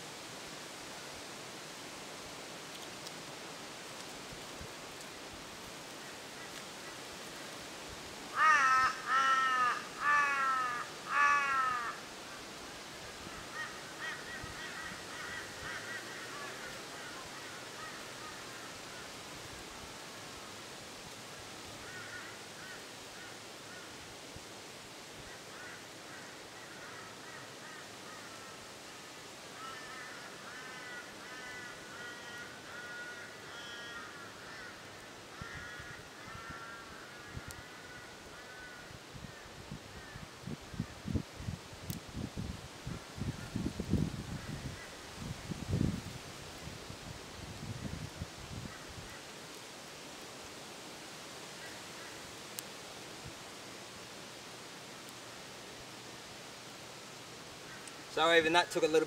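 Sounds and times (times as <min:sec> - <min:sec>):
outdoor hiss: 0:00.0 - 0:59.0
crow cawing: 0:08.3 - 0:12.0, 0:13.4 - 0:19.1, 0:21.8 - 0:23.9, 0:25.3 - 0:28.7, 0:29.5 - 0:39.0.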